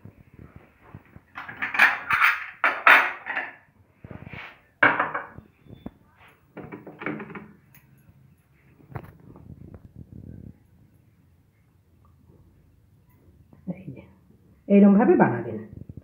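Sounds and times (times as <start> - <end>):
dishes clattering and scraping: 1.2 - 3.7, 4.8 - 5.4, 6.6 - 7.6.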